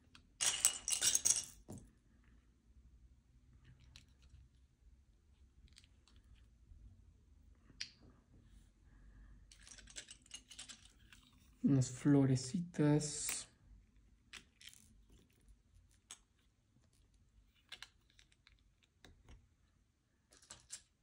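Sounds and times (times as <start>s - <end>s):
plastic pieces clicking and rattling: 0.1s - 1.8s, 9.5s - 11.5s, 14.3s - 19.4s, 20.3s - 21.0s.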